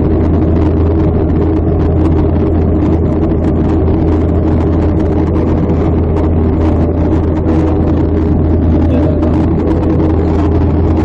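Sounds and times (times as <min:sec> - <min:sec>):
jet engine hum: 0:04.9 - 0:11.0
faint steady tones: 0:08.6 - 0:10.4.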